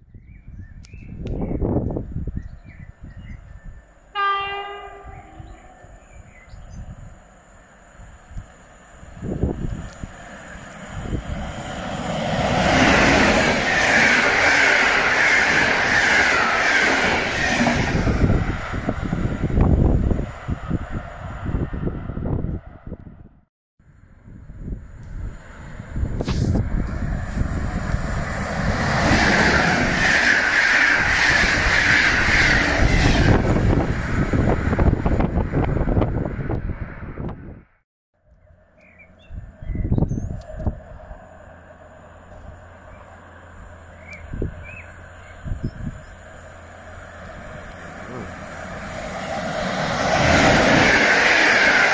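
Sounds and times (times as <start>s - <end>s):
train wheels rushing on rails: 4.6s - 22.7s, 25.4s - 37.5s, 40.3s - 51.9s.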